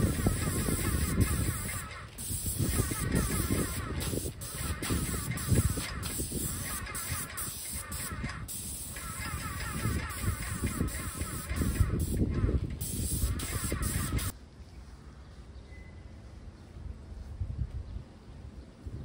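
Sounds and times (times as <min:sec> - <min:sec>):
paint sprayer hissing: 0:00.0 - 0:14.4.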